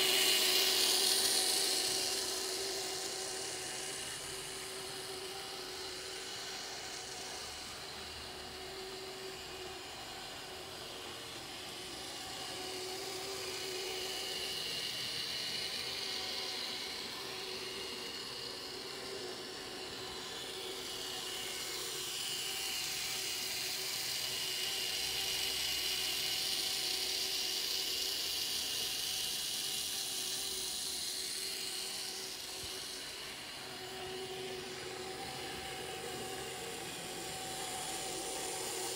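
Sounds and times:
model train motor whirring: 0:00.0 - 0:38.9.

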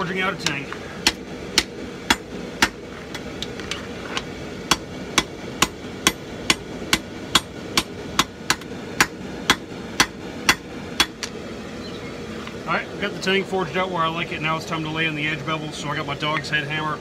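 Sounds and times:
hammer striking steel on anvil: 0:00.4 - 0:02.8, 0:04.7 - 0:11.4.

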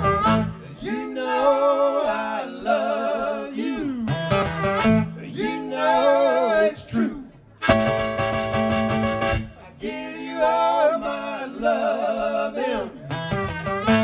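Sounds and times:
electric bass: 0:00.0 - 0:00.8, 0:04.1 - 0:05.3, 0:07.6 - 0:09.6, 0:13.0 - 0:14.0
strummed acoustic guitar: 0:00.0 - 0:00.8, 0:04.1 - 0:05.3, 0:07.6 - 0:09.6, 0:13.0 - 0:14.0.

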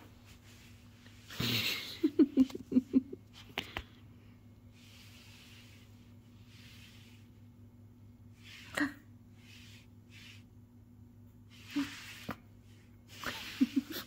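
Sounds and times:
soft rustles: 0:00.0 - 0:02.5, 0:04.6 - 0:07.6, 0:11.3 - 0:14.0.

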